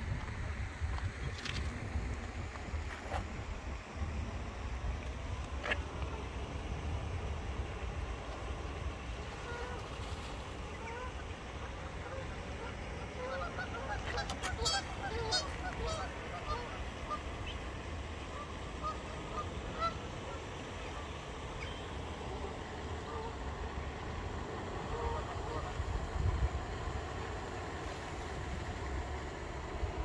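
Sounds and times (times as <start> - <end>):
geese honking: 9.2 - 9.9, 10.6 - 17.6, 18.2 - 23.4, 24.8 - 25.8.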